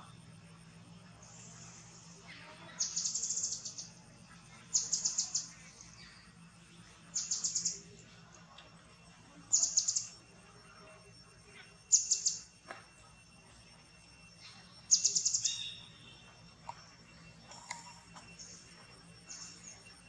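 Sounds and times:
bird calling with trilled notes: 2.6s - 4.0s, 4.6s - 6.4s, 7.1s - 8.0s, 9.5s - 10.2s, 11.9s - 12.5s, 14.4s - 19.9s.

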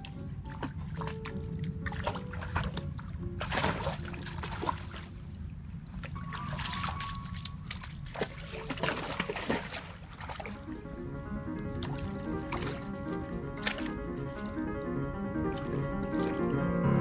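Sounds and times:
dog splashing in water: 0.0s - 5.3s, 5.9s - 10.6s, 11.7s - 12.9s, 13.6s - 14.6s
stream trickling: 0.0s - 17.0s.

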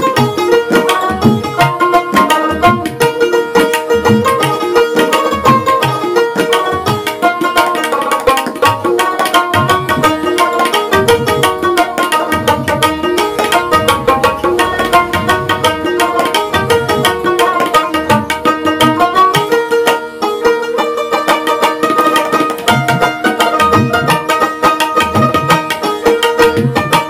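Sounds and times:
plucked string melody: 0.0s - 27.0s
steady drum beat: 8.4s - 19.9s.

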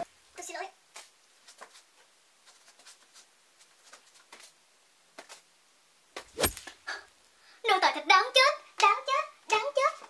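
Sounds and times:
rustling of hair and clothing: 0.4s - 5.5s
loud thump: 6.2s - 6.7s.

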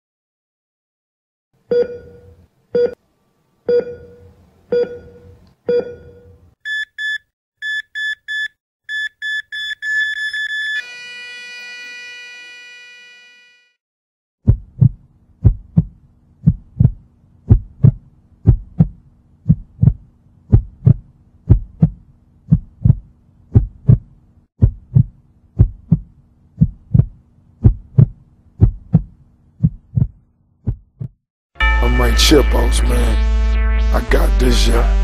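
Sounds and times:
electronic beep tone: 6.7s - 10.9s
heartbeat thumps: 14.4s - 31.2s.

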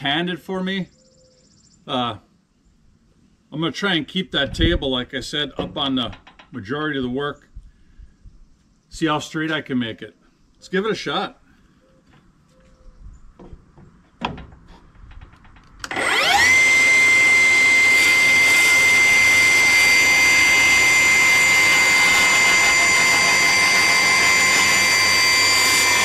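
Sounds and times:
circular saw cutting wood: 15.8s - 26.0s.

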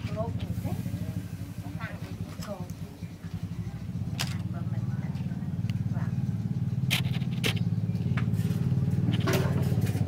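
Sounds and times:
motor running with pulse: 5.4s - 9.3s.

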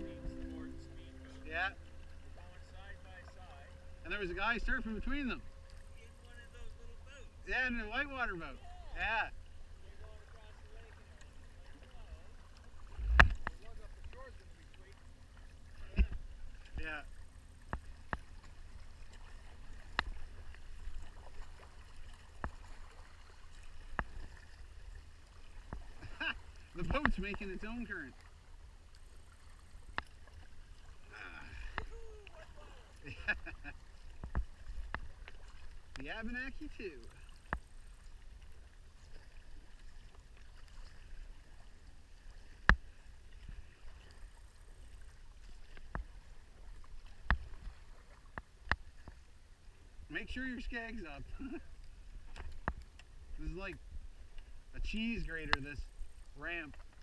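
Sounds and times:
low steady rumble: 0.0s - 17.3s
water sloshing against kayak hull: 17.6s - 29.0s, 29.6s - 50.0s
paddle stroke clicks: 37.0s - 38.2s.

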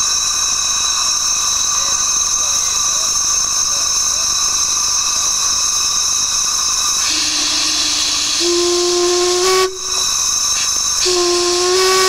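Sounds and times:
steam hissing: 0.0s - 12.0s
steam whistles blowing: 0.0s - 12.0s.

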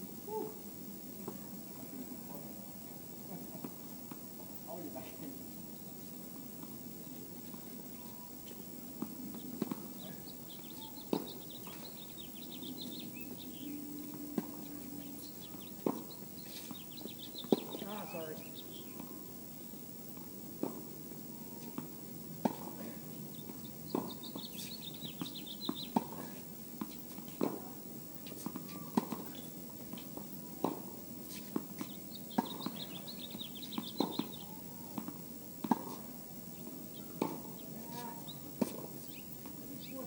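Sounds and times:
shoes squeaking: 6.4s - 40.0s
tennis ball bouncing: 8.4s - 40.0s
racket striking tennis ball: 11.0s - 11.8s, 21.8s - 22.8s, 23.5s - 34.4s, 35.0s - 36.1s, 37.0s - 37.9s.

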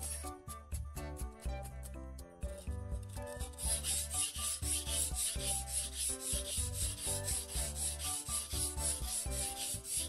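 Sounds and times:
knife scraping on whetstone: 3.2s - 10.0s.

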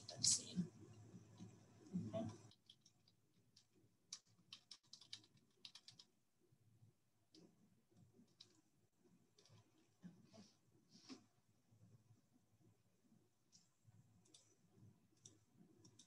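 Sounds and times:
faint computer keyboard typing: 1.2s - 6.2s, 7.3s - 10.3s, 13.5s - 16.0s.

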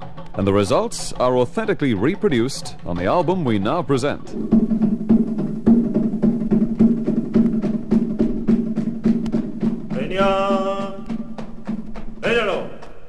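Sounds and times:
low drum tone: 1.1s - 12.4s
sharp wooden drum strokes: 4.1s - 12.9s
person chanting a long call: 10.0s - 11.2s, 12.2s - 12.9s.

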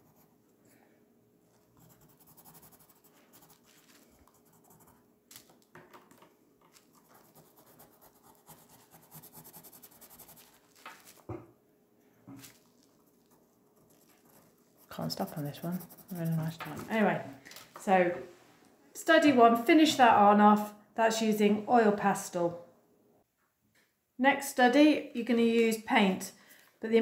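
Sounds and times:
tool scratching pastel on paper: 1.8s - 3.7s, 7.0s - 10.6s, 13.1s - 16.8s.

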